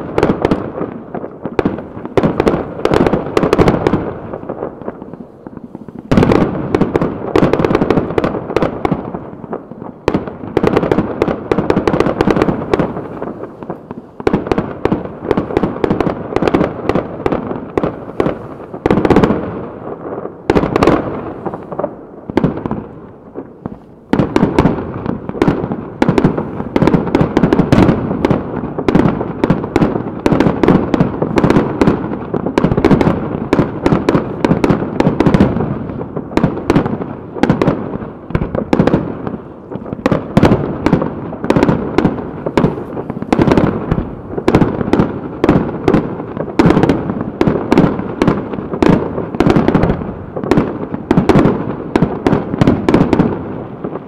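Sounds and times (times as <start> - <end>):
firework shells bursting: 20.2 - 53.5.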